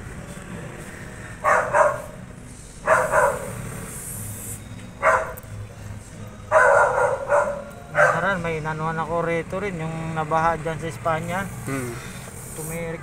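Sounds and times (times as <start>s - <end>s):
dog barking: 1.4s - 2.2s, 2.8s - 3.8s, 5.0s - 5.4s, 6.5s - 8.4s.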